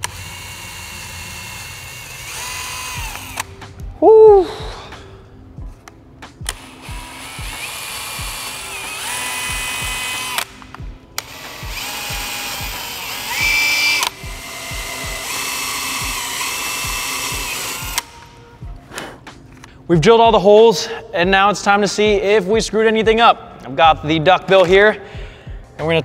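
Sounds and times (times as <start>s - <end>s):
power drill whining: 0.0s - 3.5s, 6.5s - 18.4s
background music with steady beat: 0.0s - 26.0s.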